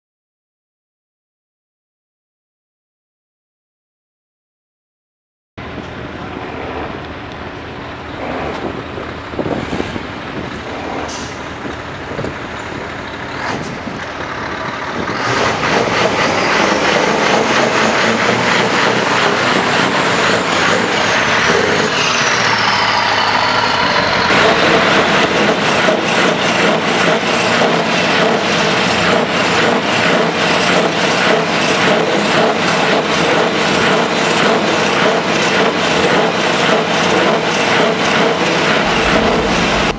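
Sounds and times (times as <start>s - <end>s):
diesel engine through loud exhaust: 8.0s - 32.8s, 38.4s - 39.9s.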